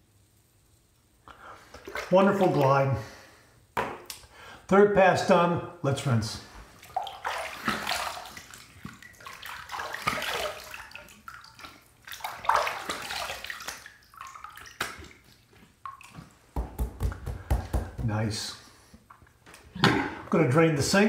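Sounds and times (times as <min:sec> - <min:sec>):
water splashing onto face: 0:01.6 - 0:02.8, 0:06.6 - 0:18.0.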